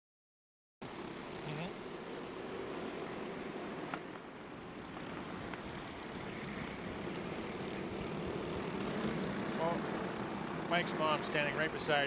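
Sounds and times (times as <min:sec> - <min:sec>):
kart engines droning: 0:00.8 - 0:12.0.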